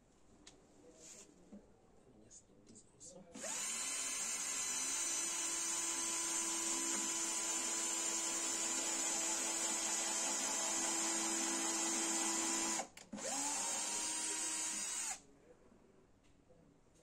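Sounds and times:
electric drill boring into wood: 0:03.4 - 0:15.2.

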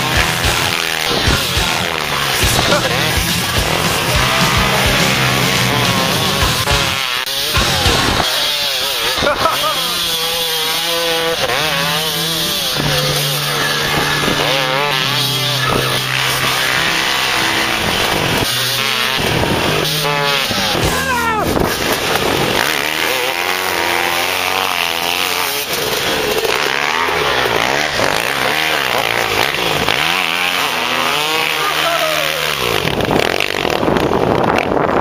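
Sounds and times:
dirt bike engines revving: 0:00.0 - 0:35.0.

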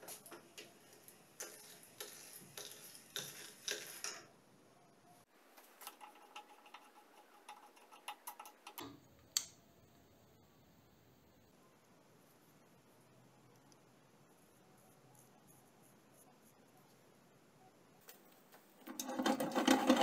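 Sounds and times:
metal meat grinder clicking: 0:18.9 - 0:20.0.

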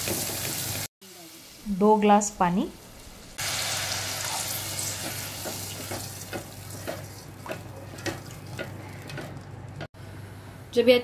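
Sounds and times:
water sizzling in hot oil: 0:00.0 - 0:07.3
spatula knocking and scraping pot: 0:05.0 - 0:09.9.

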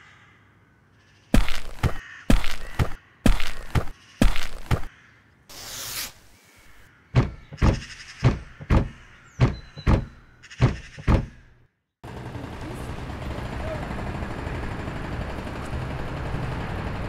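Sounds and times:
heavy cartoon footsteps: 0:01.4 - 0:04.9, 0:07.2 - 0:11.5
short rushing hiss: 0:05.5 - 0:06.8.

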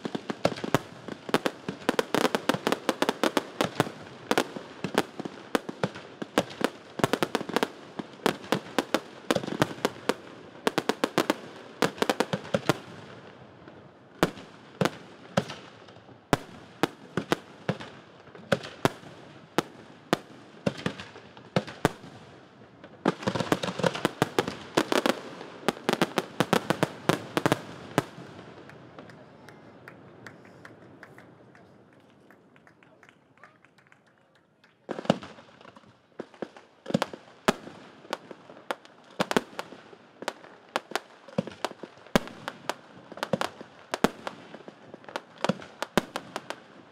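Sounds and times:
fireworks bursting: 0:00.0 - 0:32.6.

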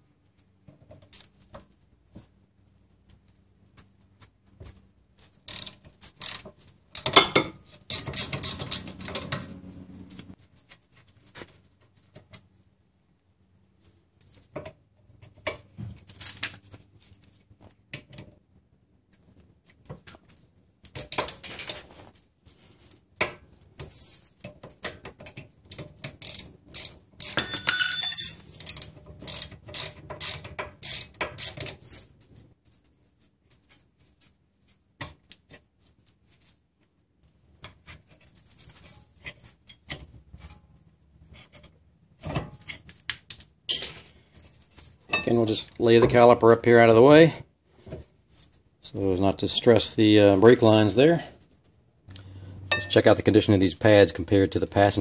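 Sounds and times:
metal clinks: 0:27.3 - 0:28.5.

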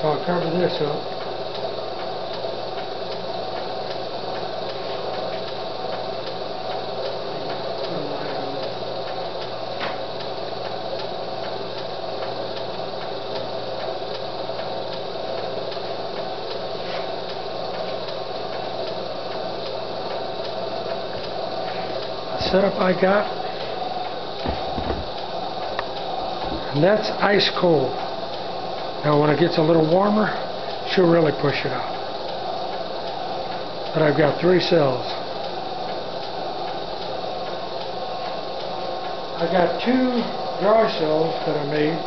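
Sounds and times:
electrical hum: 0:00.0 - 0:42.0.

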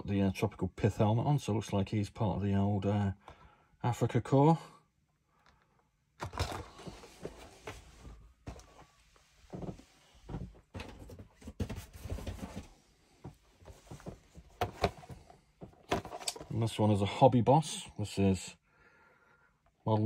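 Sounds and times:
cardboard boxes being handled: 0:09.6 - 0:12.8, 0:13.6 - 0:16.5.

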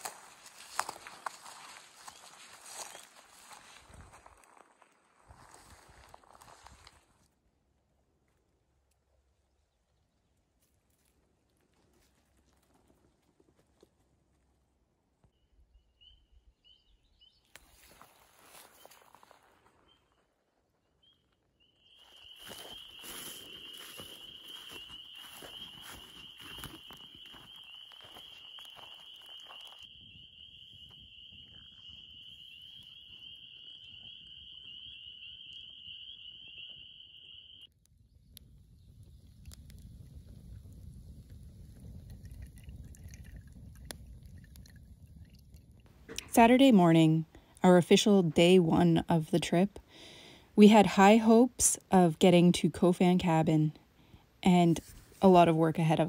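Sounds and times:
footsteps through brush: 0:00.0 - 0:07.3, 0:17.5 - 0:20.4, 0:22.0 - 0:29.9
faint high chirps: 0:21.0 - 0:39.2.

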